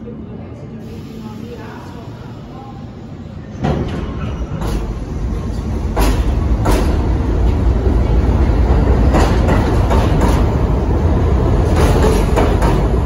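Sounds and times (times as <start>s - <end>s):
subway train rumble: 0.0s - 13.0s
wheels clacking on rails: 3.6s - 13.0s.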